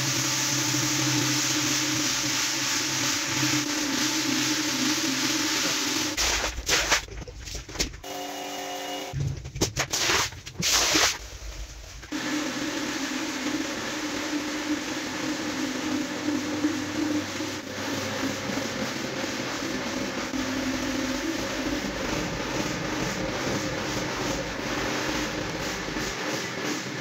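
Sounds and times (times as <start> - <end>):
floor scrubber motor hum: 0.0 - 6.2, 12.1 - 27.0
brush scrubbing wet rug: 0.0 - 7.1, 12.1 - 27.0.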